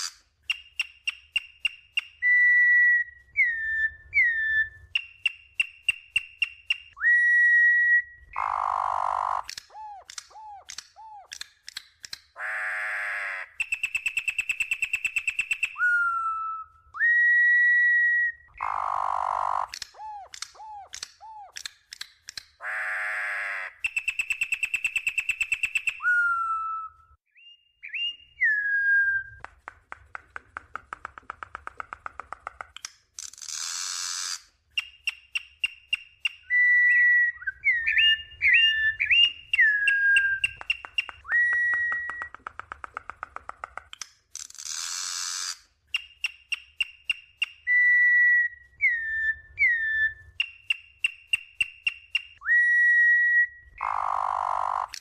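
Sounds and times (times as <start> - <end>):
bird whistled song: 0.0 - 11.4, 13.4 - 21.7, 23.7 - 29.4, 33.8 - 42.4, 44.9 - 55.0
harsh raspy bird calls: 8.3 - 11.0, 12.3 - 15.2, 18.5 - 21.6, 22.6 - 26.6, 53.8 - 55.0.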